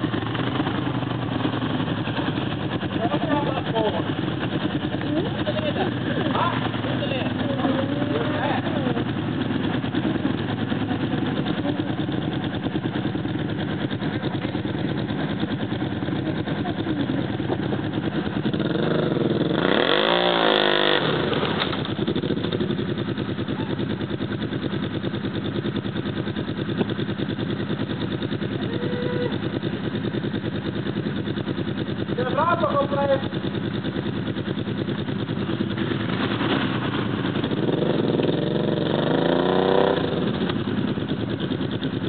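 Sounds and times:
quad bike engine revving: 0.0s - 42.0s.

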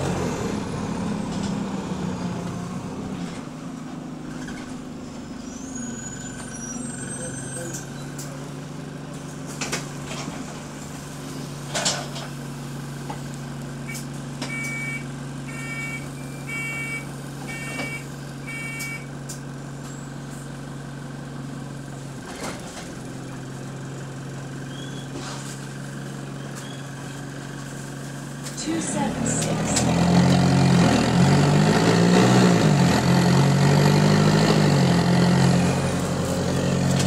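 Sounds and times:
bus diesel engine idling: 0.0s - 31.7s, 32.6s - 37.0s
door warning beeps: 13.9s - 19.1s.

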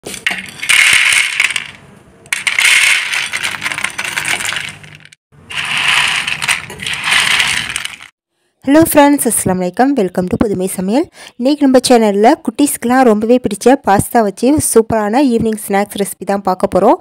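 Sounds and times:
fried pasta clattering onto plate: 2.3s - 8.1s.

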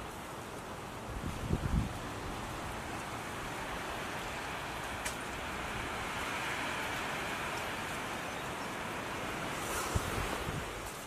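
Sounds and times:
steady outdoor rushing noise: 0.0s - 11.0s.

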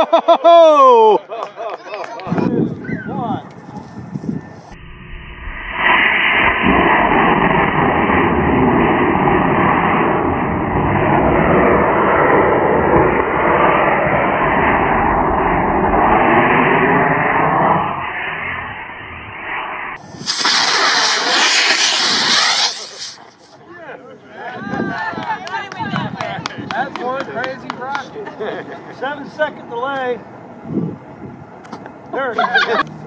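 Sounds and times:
sharper rush of motor exhaust: 3.9s - 23.6s
rocket motor exhaust hiss: 19.4s - 23.6s.

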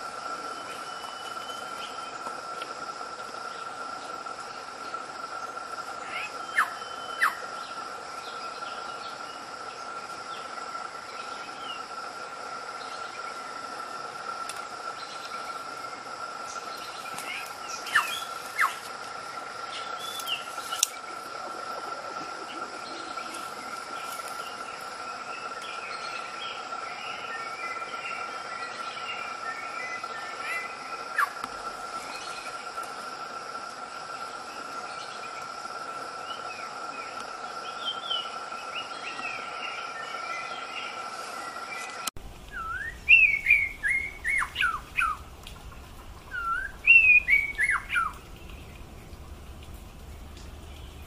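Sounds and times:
insect drone: 0.0s - 51.0s
sharp bird calls: 6.0s - 9.2s, 16.4s - 31.4s, 37.8s - 49.2s
bird chirps: 6.0s - 9.3s, 16.4s - 18.9s, 19.6s - 32.6s, 37.1s - 49.2s
bird whistled calls: 6.1s - 7.5s, 17.2s - 18.8s, 19.7s - 20.9s, 29.6s - 31.4s, 42.5s - 45.2s, 46.3s - 48.2s.

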